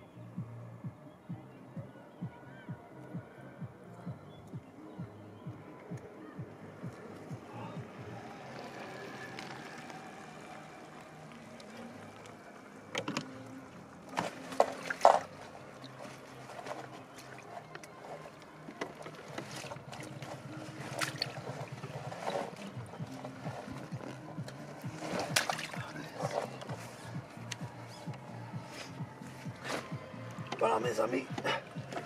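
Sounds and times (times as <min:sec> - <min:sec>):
water splashing: 0:06.0 - 0:32.0
net and bag being handled: 0:14.2 - 0:30.7
fish flapping in a net: 0:19.4 - 0:27.6.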